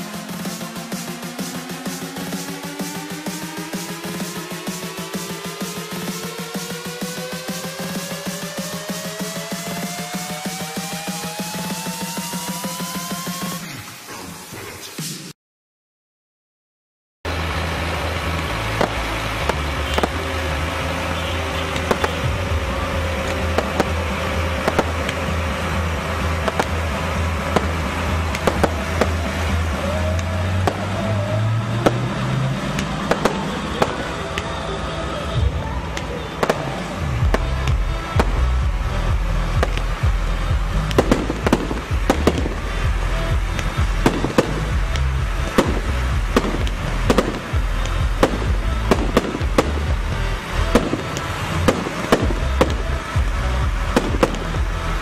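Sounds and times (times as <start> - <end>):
music with heavy bass: 0.0 - 15.3, 17.3 - 55.0
fireworks launching and bursting: 0.0 - 15.4, 17.3 - 55.0
steady low drone: 17.3 - 55.0
firework shells bursting: 18.4 - 20.5, 23.2 - 29.5, 40.8 - 42.9.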